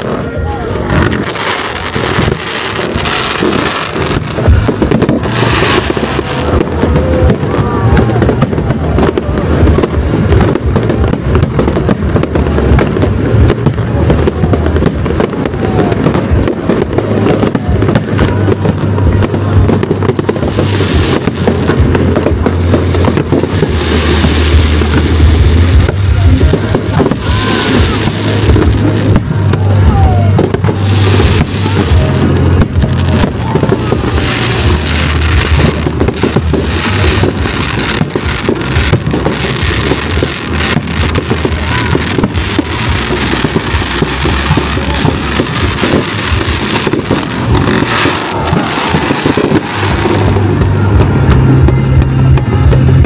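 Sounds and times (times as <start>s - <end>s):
fireworks bursting and crackling: 0.0s - 53.0s
loud music with deep bass: 19.6s - 53.0s.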